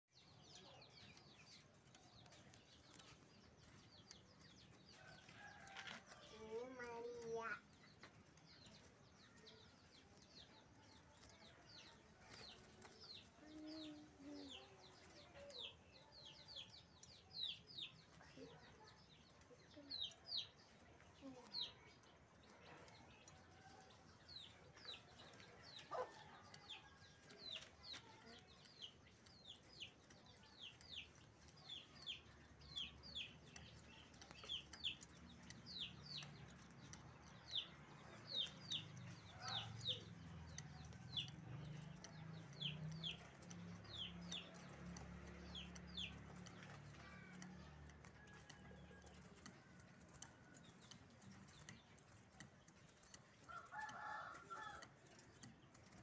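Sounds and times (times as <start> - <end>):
songbird chirping: 0.0 - 56.0.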